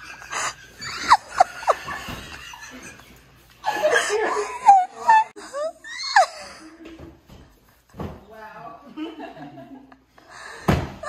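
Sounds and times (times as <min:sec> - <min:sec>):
people laughing: 0:00.0 - 0:07.0, 0:08.9 - 0:10.6.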